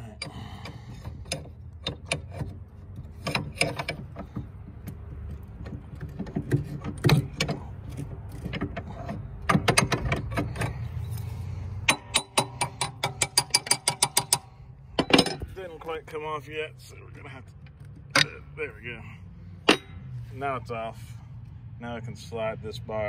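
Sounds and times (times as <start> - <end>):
wrench clicking and creaking: 0.0 - 15.6.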